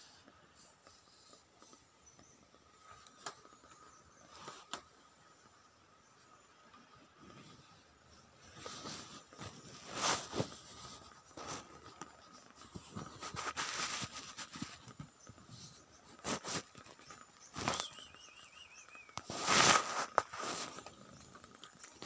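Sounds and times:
fur rubbing on microphone: 8.4 - 17.9, 19.2 - 21.3.

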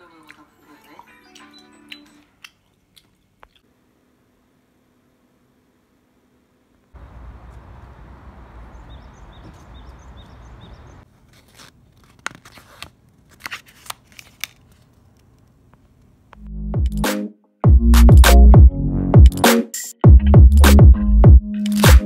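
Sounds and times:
outdoor air hiss: 3.7 - 11.0
small bird chirping: 7.3 - 11.0
paper envelope rustling: 11.1 - 15.4.

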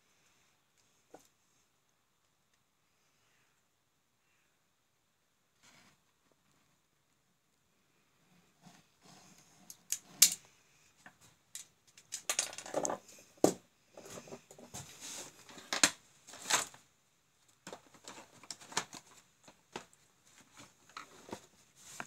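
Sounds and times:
plastic parts clicking: 11.5 - 13.0.

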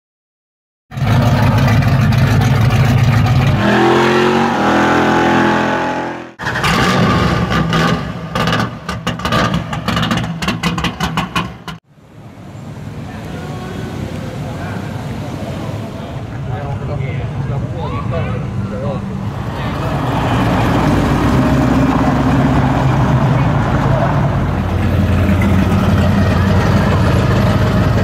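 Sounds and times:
car engine revving: 0.9 - 11.8, 19.2 - 28.0.

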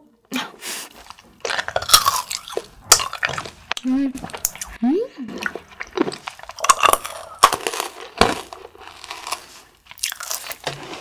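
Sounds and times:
candy crunching between teeth: 0.9 - 11.0.

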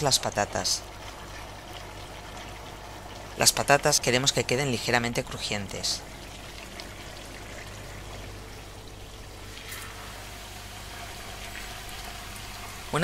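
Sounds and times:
potatoes sizzling in oil: 9.4 - 13.0.

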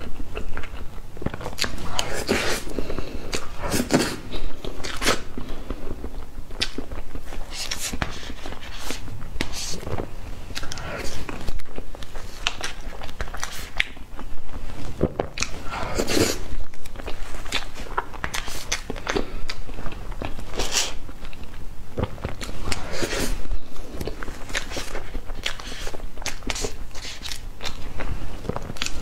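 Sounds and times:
wet chewing and lip smacking: 0.0 - 23.2, 23.8 - 29.0.

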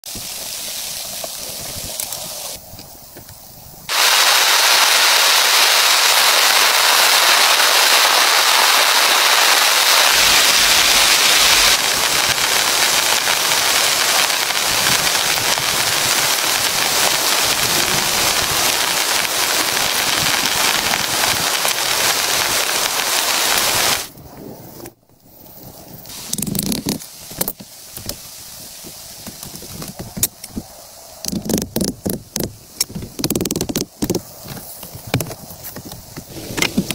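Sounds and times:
heavy rain on plastic sheeting: 0.0 - 2.8, 3.9 - 24.2, 26.1 - 36.9.

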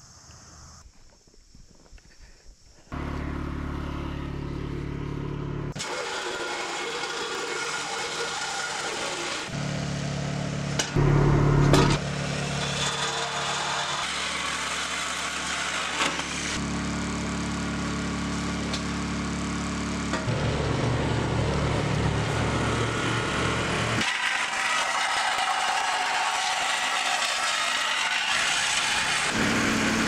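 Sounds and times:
portable generator running: 3.0 - 30.0
reciprocating saw cutting steel: 5.8 - 11.2, 11.8 - 16.7, 20.1 - 30.0.

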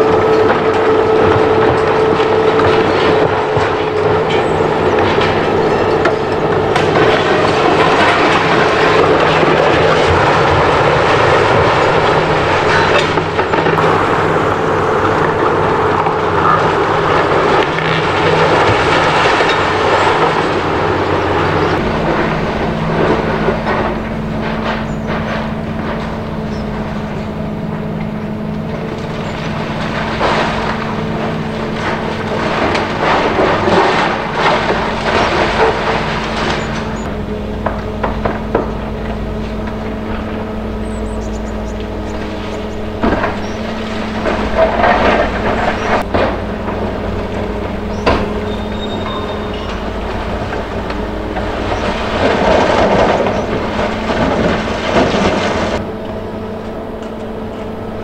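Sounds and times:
concrete crunching and clattering: 0.0 - 57.9
excavator engine running: 0.0 - 58.0
falling debris crashes: 0.0 - 58.0.

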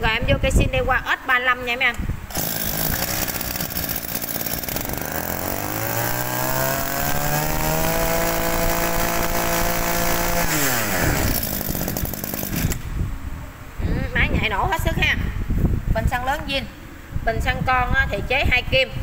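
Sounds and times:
brush cutter engine revving: 2.3 - 12.9.

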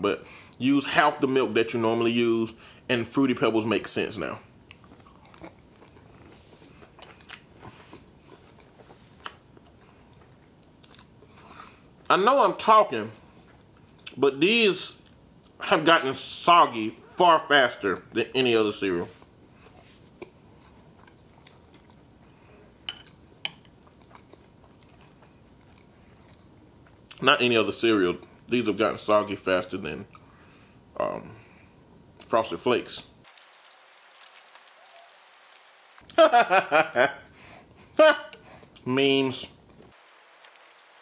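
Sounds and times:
person chewing soggy cereal: 4.7 - 11.9, 19.1 - 22.3, 23.8 - 27.2.

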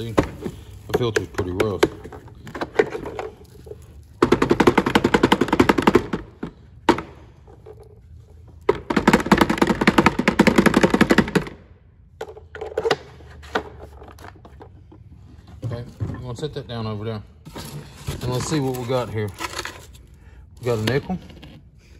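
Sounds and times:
rapid rattling knocks: 4.2 - 7.9.

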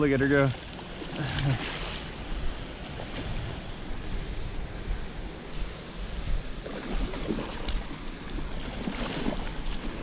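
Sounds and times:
rushing water: 0.0 - 10.0
fish splashing in shallows: 6.6 - 10.0.

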